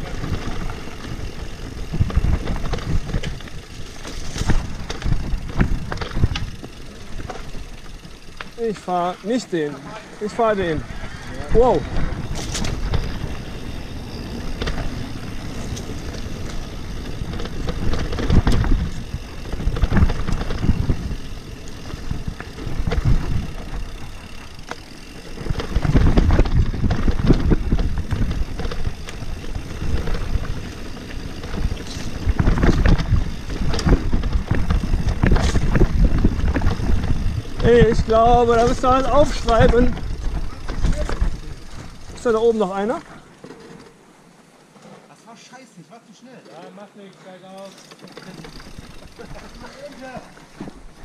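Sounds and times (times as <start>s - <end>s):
wind buffeting microphone: 0.0s - 3.6s, 10.4s - 42.2s
tyres rumbling on dirt: 0.0s - 43.2s
bike rattling over bumps: 0.0s - 44.8s, 46.5s - 51.0s.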